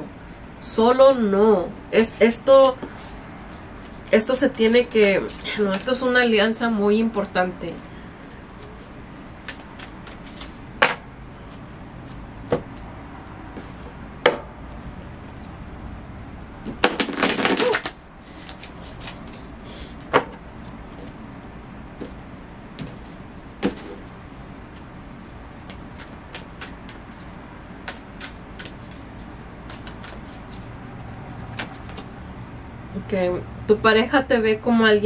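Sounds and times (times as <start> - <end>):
cards rustling: 8.5 - 10.7, 16.8 - 19.5, 25.6 - 32.1.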